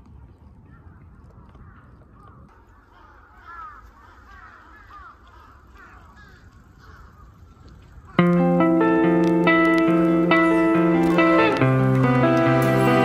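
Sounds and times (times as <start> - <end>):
crows cawing: 1.6 - 9.2
guitar music: 8.2 - 13.0.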